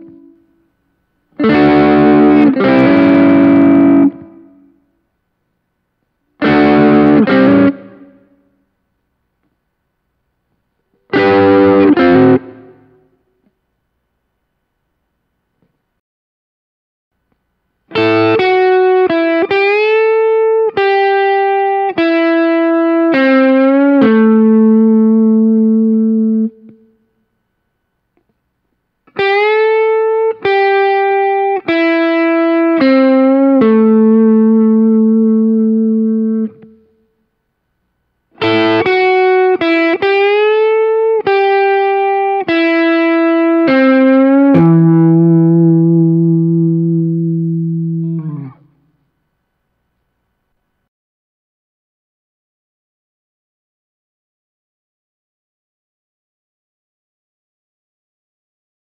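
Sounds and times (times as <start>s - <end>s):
electric guitar blues lick: 1.4s - 4.4s, 6.4s - 8.2s, 11.1s - 13.0s, 17.9s - 26.8s, 29.1s - 36.8s, 38.4s - 48.8s.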